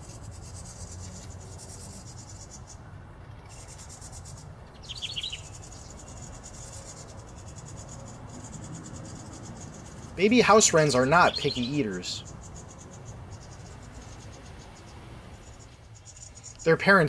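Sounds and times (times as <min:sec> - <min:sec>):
high bird chirps: 0:03.4 - 0:17.0
high pulsing insect trill: 0:03.5 - 0:17.0.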